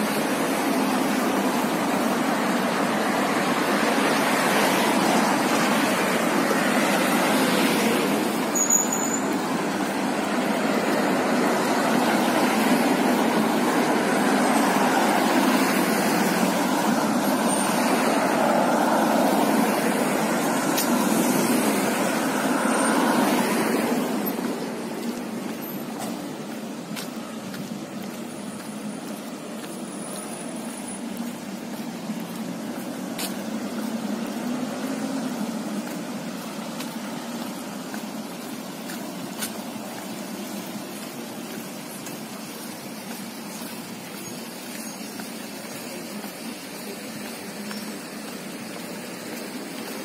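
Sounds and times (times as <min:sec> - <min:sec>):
passing road traffic: 0:00.0 - 0:50.0.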